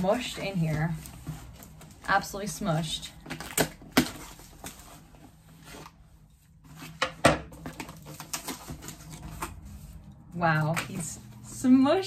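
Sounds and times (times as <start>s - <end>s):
cardboard box rustling: 0.0s - 2.4s, 3.2s - 10.1s
cardboard scraping: 0.0s - 11.6s.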